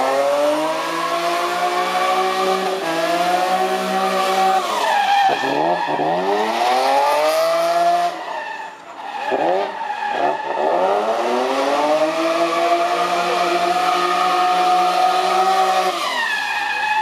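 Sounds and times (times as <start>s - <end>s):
car engine revving hard: 0.0s - 8.2s, 9.3s - 16.2s.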